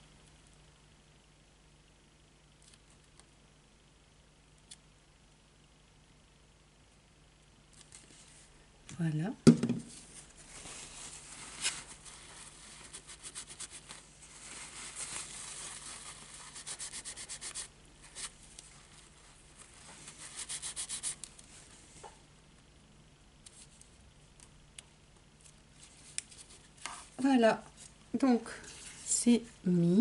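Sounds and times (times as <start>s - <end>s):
tissue rubbing on paper: 9.9s - 22.0s, 28.6s - 29.5s.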